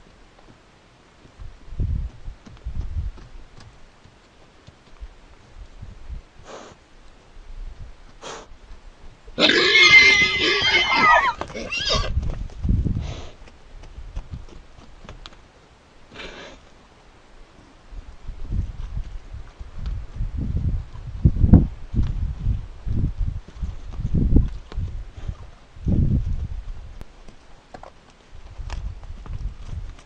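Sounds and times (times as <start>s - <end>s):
horse squealing: 9.4s - 12.2s.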